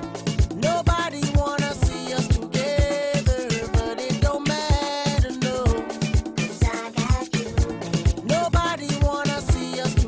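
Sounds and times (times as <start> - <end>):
music with steady drum beat: 0.0 - 10.0.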